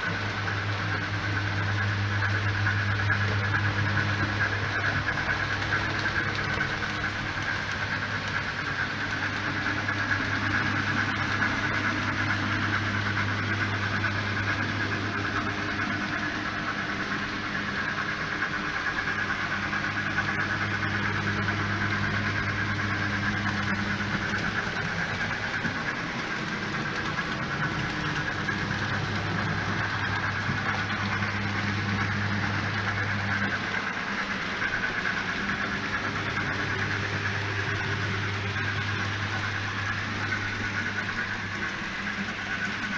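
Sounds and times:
low hum: 0.0s - 42.9s
model train running on track: 0.0s - 42.9s.

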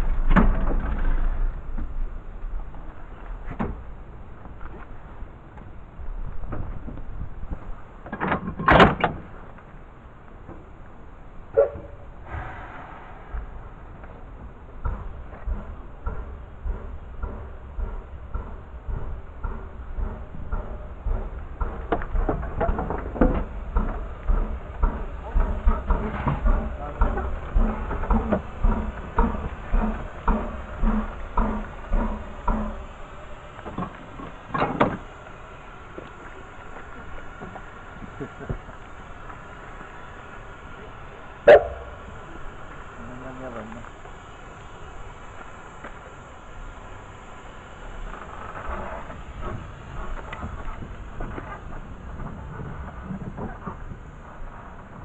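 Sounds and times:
metal bangs and clunks: 0.0s - 4.0s, 11.5s - 32.9s
steam hiss: 8.8s - 55.0s
short loud steam burst: 11.6s - 14.7s.

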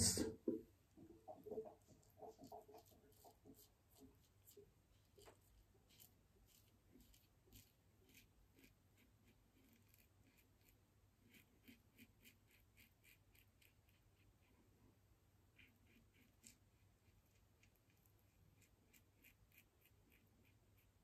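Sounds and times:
razor scraping stubble: 1.7s - 14.0s.

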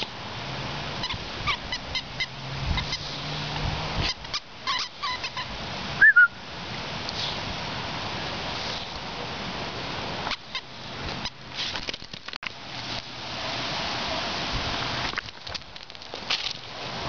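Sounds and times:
plush toy squeaks: 4.0s - 5.5s.

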